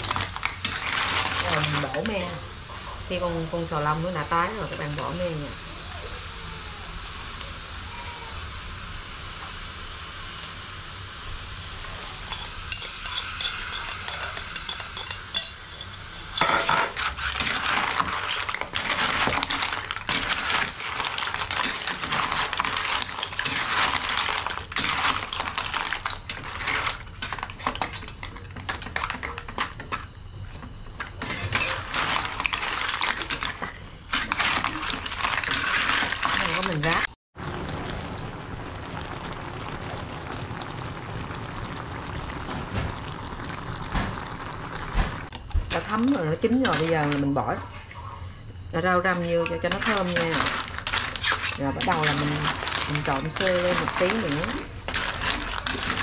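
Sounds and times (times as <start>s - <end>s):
shellfish sizzling in a wok: 0.0s - 47.6s, 48.4s - 56.0s
shells clattering against a wok: 12.2s - 29.9s.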